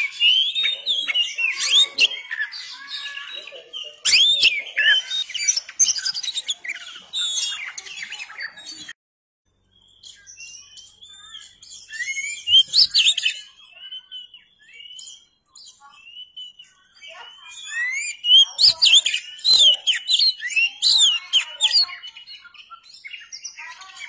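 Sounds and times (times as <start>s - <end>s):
songbird singing: 0.0s - 24.0s.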